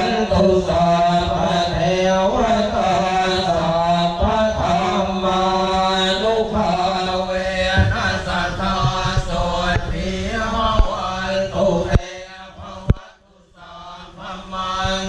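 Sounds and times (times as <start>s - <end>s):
monks chanting in unison: 0.0s - 15.0s
sharp knocks: 7.7s - 10.0s.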